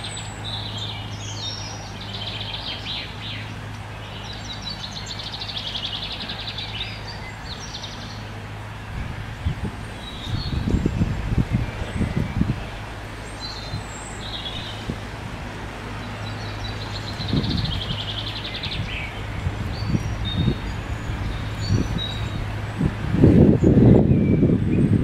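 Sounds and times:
songbirds chirping: 0.0s - 25.0s
steady low rumble: 0.0s - 25.0s.

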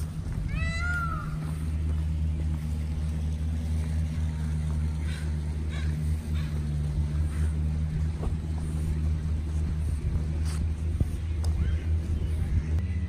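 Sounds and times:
distant motor hum: 0.0s - 13.0s
faint rustles: 6.0s - 13.0s.

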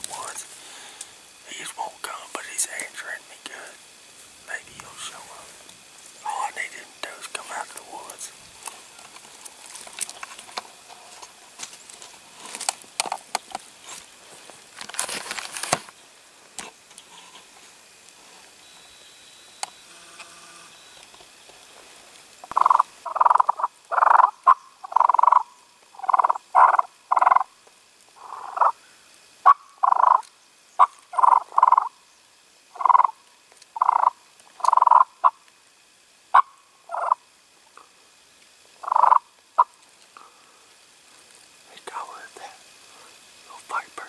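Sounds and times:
turkey call clucks: 22.4s - 27.5s, 28.2s - 28.8s, 29.4s - 30.2s, 30.8s - 31.9s, 32.8s - 33.2s, 33.8s - 35.4s, 36.3s - 37.2s, 38.8s - 39.8s
turkey gobbling: 22.5s - 25.4s, 30.8s - 31.9s, 33.8s - 35.4s, 36.3s - 37.2s, 38.8s - 39.7s
turkey call yelps: 29.4s - 30.2s, 36.3s - 37.2s, 38.8s - 39.7s.

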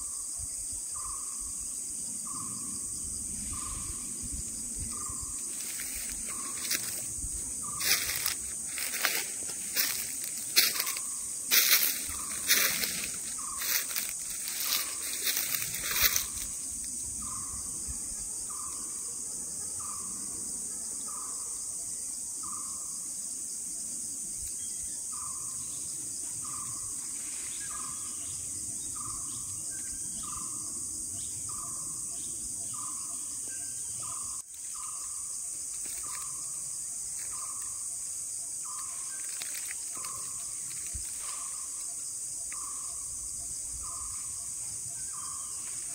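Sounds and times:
high-pitched insect drone: 0.0s - 45.9s
footsteps crunching dry leaves: 4.9s - 16.9s, 35.6s - 37.8s, 38.6s - 41.7s.

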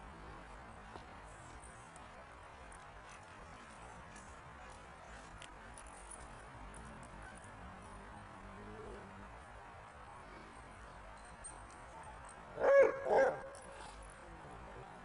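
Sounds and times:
dog barking: 12.6s - 13.5s.

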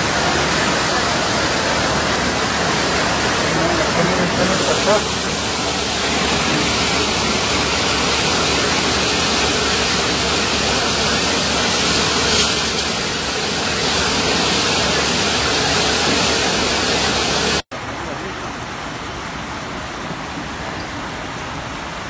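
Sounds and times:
floodwater rushing: 0.0s - 22.0s.

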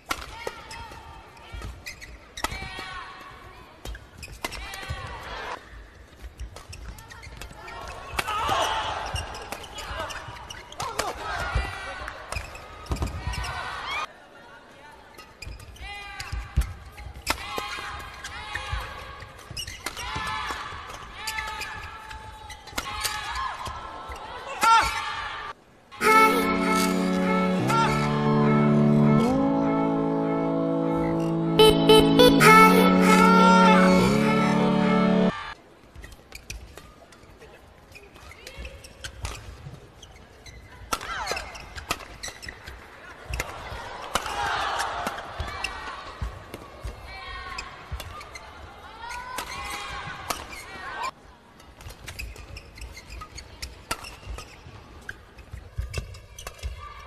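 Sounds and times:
shoes squeaking on court: 0.7s - 2.6s, 3.8s - 4.7s, 6.0s - 8.2s, 9.0s - 11.1s, 12.3s - 13.6s, 15.1s - 17.3s, 18.1s - 20.1s, 35.9s - 43.6s, 45.4s - 56.8s.

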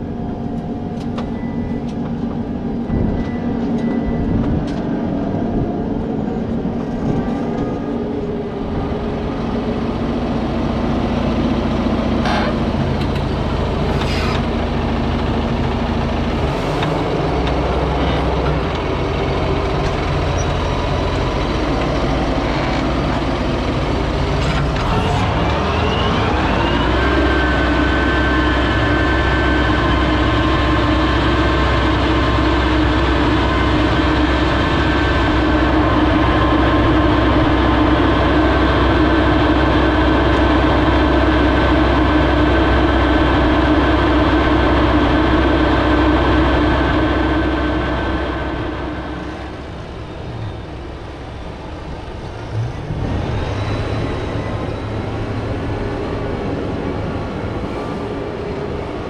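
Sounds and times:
tractor engine and driveline: 0.0s - 59.0s
rising tone: 16.1s - 58.2s.

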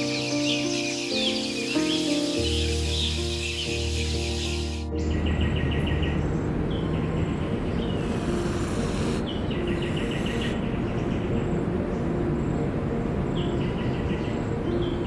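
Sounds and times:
background music: 0.0s - 15.0s
high chirping trills: 0.0s - 15.0s
steady hiss: 1.6s - 4.9s, 8.0s - 10.6s.

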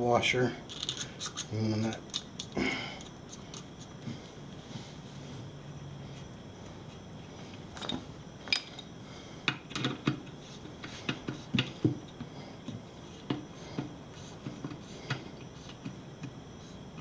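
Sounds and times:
small metal parts clicking: 0.7s - 1.5s.

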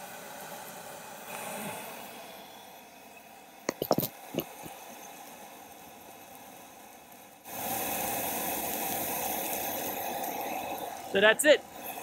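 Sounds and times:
water boiling: 3.3s - 12.0s
gas burner flame rushing: 7.4s - 12.0s.

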